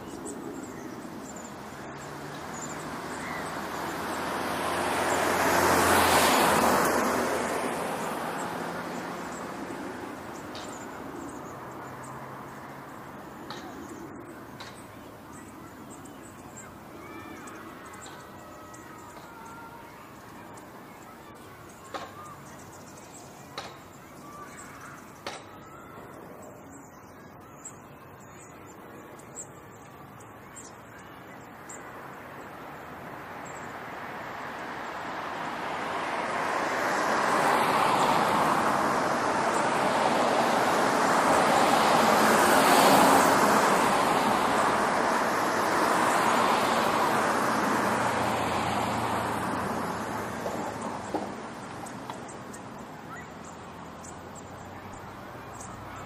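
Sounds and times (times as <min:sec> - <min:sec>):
vehicle passing: 0:00.0 - 0:26.0, 0:31.6 - 0:56.0.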